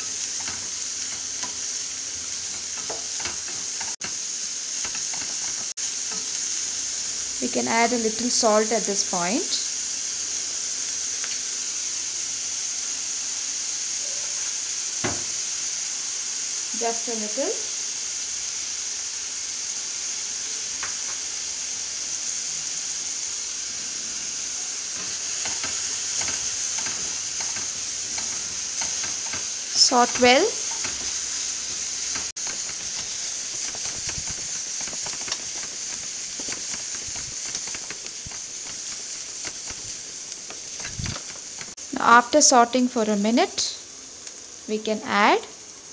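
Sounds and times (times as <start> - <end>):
oil crackles and pops: 0.0 - 6.5, 24.9 - 41.9
food sizzling in hot oil: 0.0 - 45.9
wooden spatula scraping: 25.0 - 41.8.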